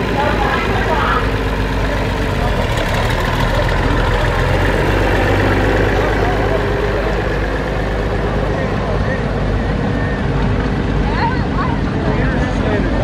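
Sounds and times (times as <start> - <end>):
tractor engine running slowly: 0.0 - 13.0.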